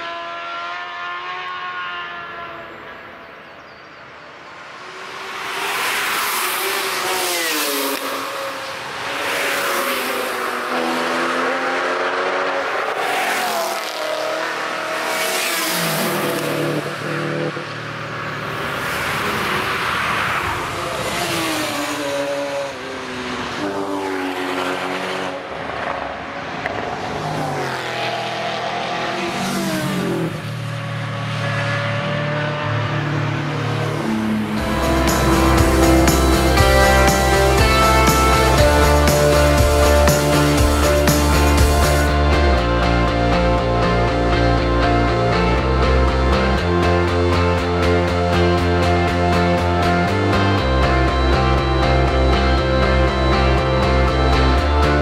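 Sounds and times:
race vehicles passing at speed: 0.0 - 55.0.

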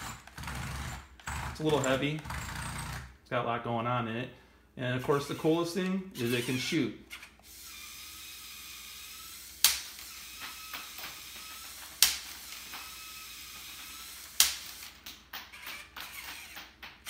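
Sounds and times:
small motor whirring: 6.3 - 16.6
toy ball gun firing snaps: 9.6 - 12.9, 14.3 - 15.2.

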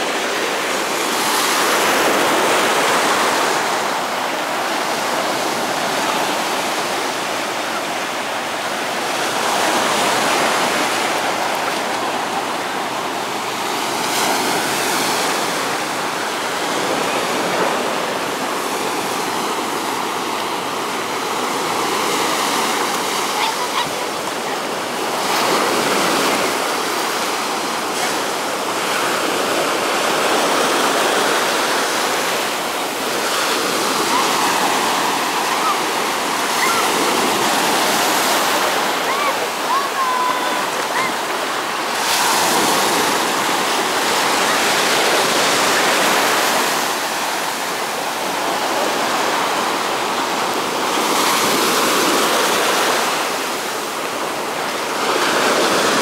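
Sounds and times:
sea waves breaking on beach: 0.0 - 56.0.

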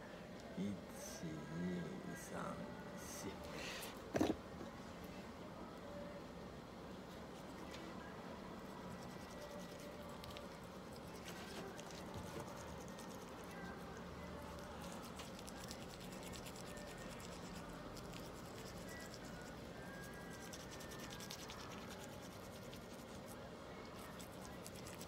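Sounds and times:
toothbrush scratching teeth: 8.8 - 13.8, 14.5 - 25.0.

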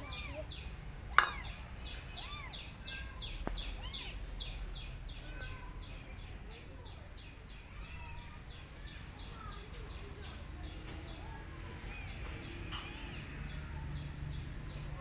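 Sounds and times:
kitten mewing: 0.0 - 0.5, 1.1 - 2.7.

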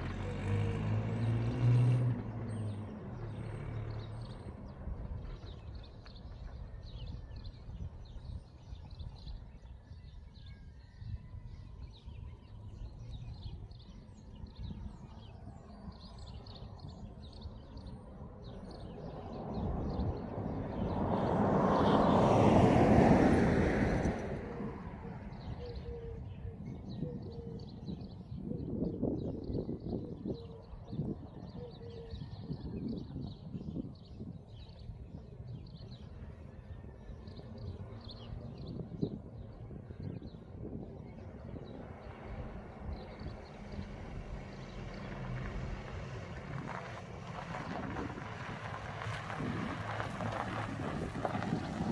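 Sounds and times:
vehicle driving past: 0.0 - 6.6, 15.3 - 26.5, 35.9 - 51.9
wind rumble: 4.0 - 51.9.

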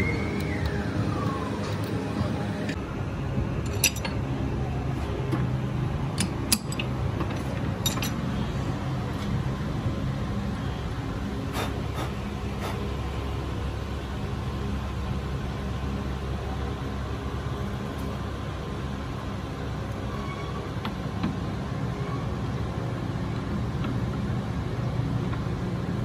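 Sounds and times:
workshop machinery humming: 0.0 - 26.0
metallic clinks of tools: 7.8 - 8.2.

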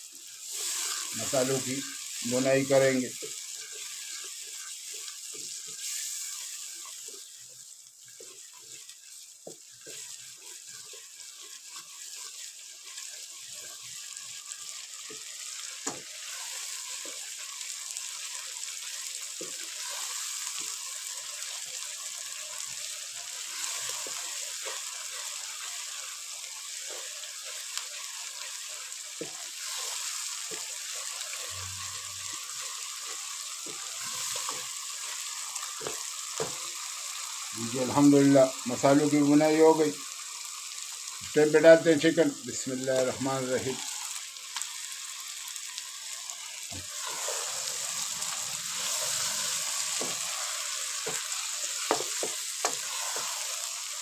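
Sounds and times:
sauce sizzling in a pot: 0.0 - 54.0
wooden spatula scraping pot: 46.9 - 47.6.

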